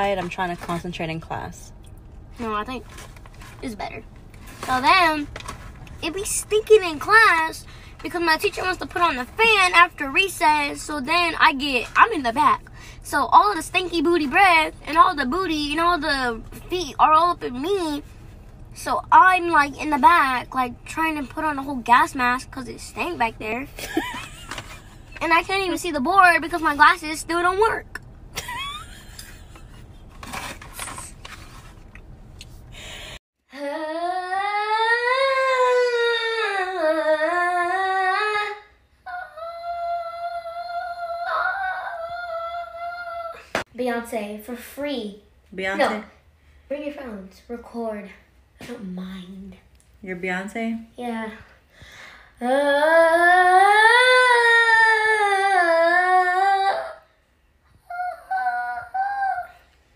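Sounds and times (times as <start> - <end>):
girl singing: 6.0 - 18.0, 18.8 - 24.4, 33.5 - 43.6, 52.3 - 59.7
girl singing long notes: 33.5 - 43.5, 52.4 - 57.1, 57.7 - 59.7.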